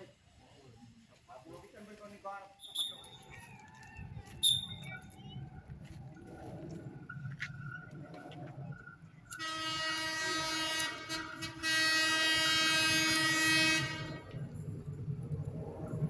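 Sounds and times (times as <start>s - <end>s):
train horn blasts: 9.3s - 14.4s
low rumble: 13.8s - 16.0s.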